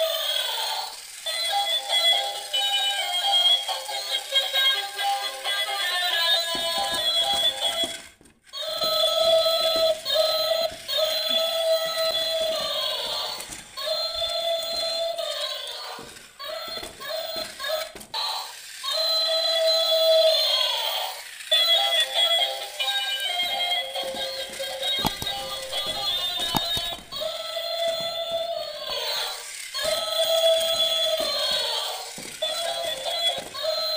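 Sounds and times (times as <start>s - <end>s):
tinny electronic toy tune: 1.0s - 20.8s, 21.4s - 33.9s.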